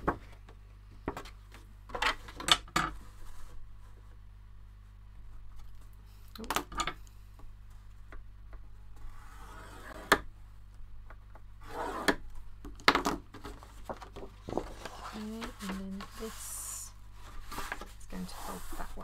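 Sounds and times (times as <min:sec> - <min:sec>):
paper rustling: 0:13.3 - 0:19.0
plastic tool scraping paper: 0:13.5 - 0:19.0.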